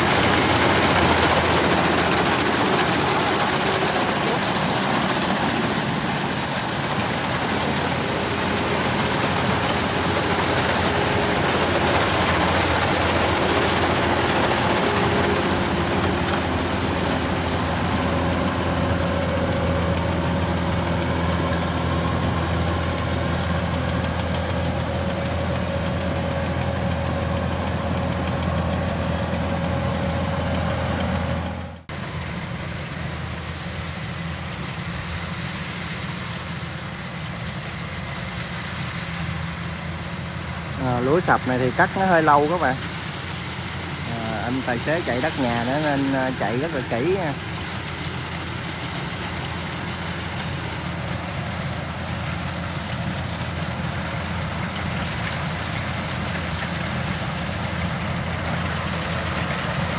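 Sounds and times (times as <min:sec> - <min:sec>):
combine harvester droning: 0:00.0 - 0:59.9.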